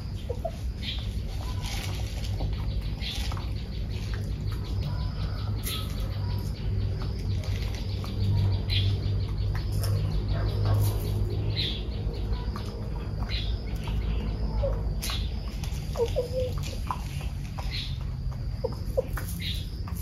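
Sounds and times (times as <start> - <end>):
chickens clucking: 0.0 - 20.0
small birds chirping: 0.0 - 20.0.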